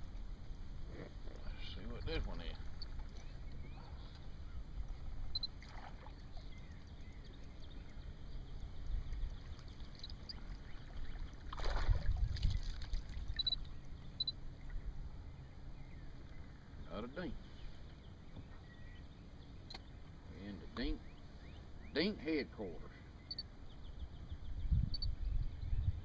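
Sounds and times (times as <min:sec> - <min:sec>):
rush of wind and water: 0:00.0 - 0:15.0
wind and water rumble: 0:00.0 - 0:26.0.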